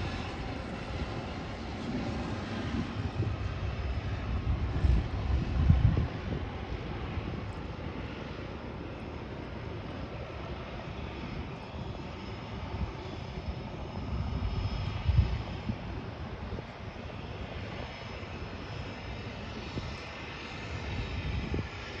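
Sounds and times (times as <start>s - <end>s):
floatplane turbine engine and propeller: 0.0s - 22.0s.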